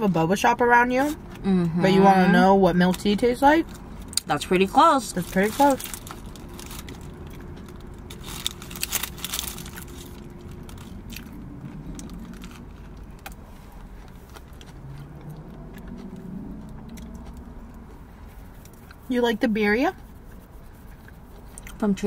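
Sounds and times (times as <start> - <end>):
low steady hum: 0.0 - 22.0
paper food wrappers crinkling: 5.0 - 14.9
chewing: 5.8 - 19.0, 20.9 - 21.8.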